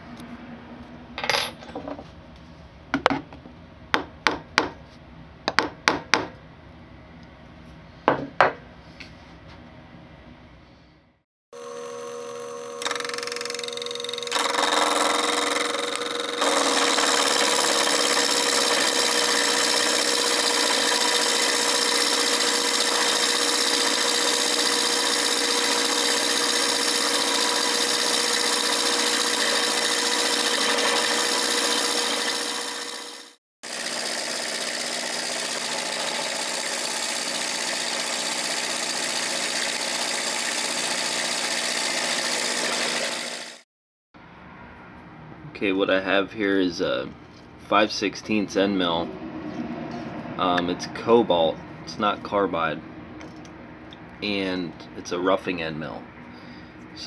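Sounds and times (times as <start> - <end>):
milling cutter cutting steel: 11.6 - 43.6.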